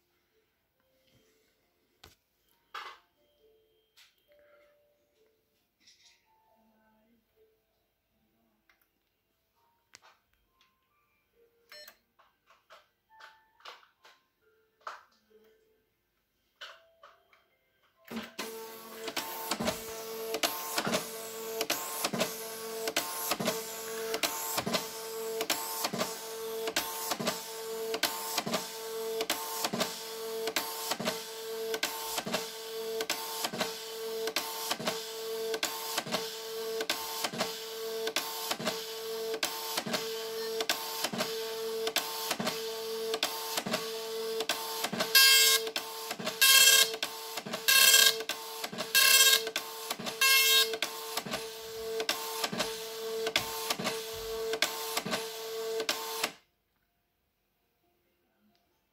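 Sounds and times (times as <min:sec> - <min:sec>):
printer carriage hum and clack: 0:18.1 - 0:56.4
printer buzzy rasps: 0:18.2 - 0:56.4.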